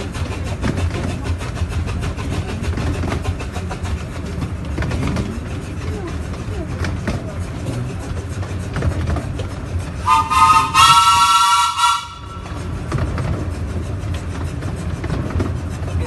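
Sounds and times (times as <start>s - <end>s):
train rumbling: 0.0s - 16.0s
steam whistle: 10.0s - 12.6s.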